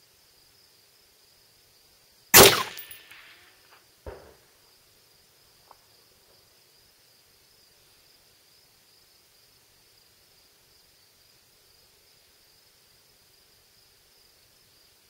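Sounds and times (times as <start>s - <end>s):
rifle shot: 2.4s - 3.4s, 4.1s - 4.4s
faint sharp report: 2.4s - 3.5s.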